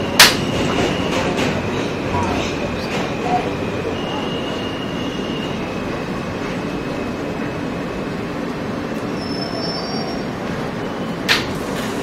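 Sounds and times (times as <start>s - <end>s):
rumble of wheels on rails: 0.0s - 12.0s
high wheel squeals: 3.8s - 5.7s, 9.1s - 11.3s.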